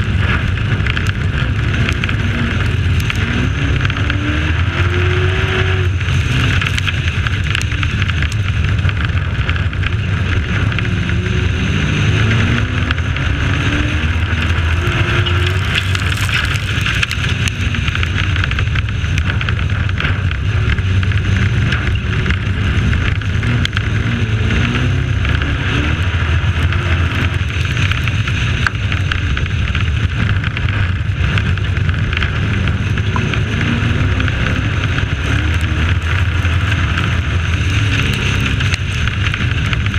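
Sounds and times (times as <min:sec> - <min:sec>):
race truck engine revving: 0:00.0 - 0:19.4
wind and road noise: 0:00.0 - 0:39.9.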